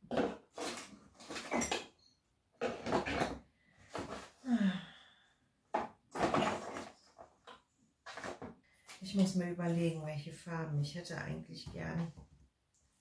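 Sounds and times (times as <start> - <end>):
cardboard and packaging rustling: 0.1 - 1.9, 6.1 - 8.6.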